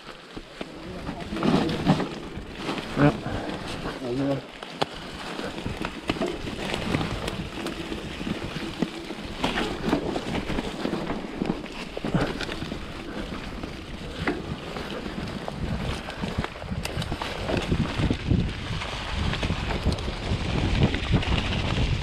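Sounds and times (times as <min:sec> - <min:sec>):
bike knocking and rattling: 0:00.0 - 0:22.0
bike tyres rolling through mud: 0:00.0 - 0:22.0
wind noise on microphone: 0:05.1 - 0:22.0.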